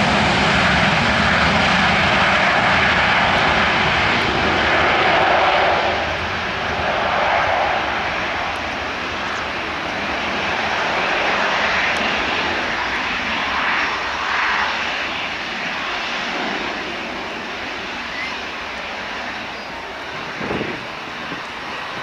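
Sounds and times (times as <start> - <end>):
jet engines at high power: 0.0 - 22.0.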